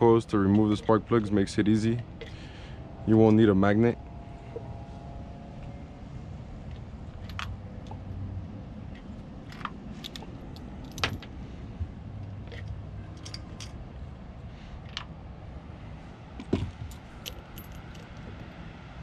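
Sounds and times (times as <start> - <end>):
light metallic clinks and clicks: 8.9 - 11.4, 12.2 - 13.8, 16.8 - 18.4.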